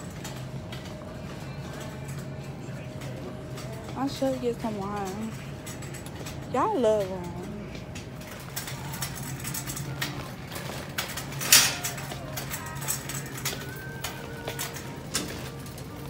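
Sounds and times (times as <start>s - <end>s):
shopping cart rattling: 0.0s - 16.0s.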